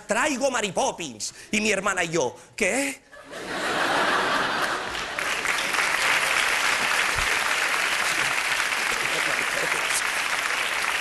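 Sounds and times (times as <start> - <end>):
studio audience applauding: 4.2 - 11.0.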